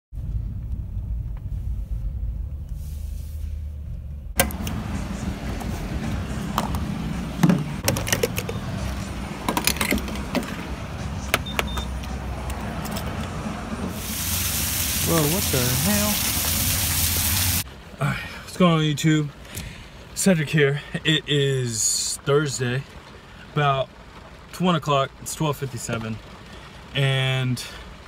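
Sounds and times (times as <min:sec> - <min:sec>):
low rumble inside car: 0:00.2 - 0:16.8
fuel cap clicks and knocks: 0:04.4 - 0:04.8, 0:06.5 - 0:08.6, 0:09.4 - 0:10.6
steady outdoor hiss: 0:13.9 - 0:23.9.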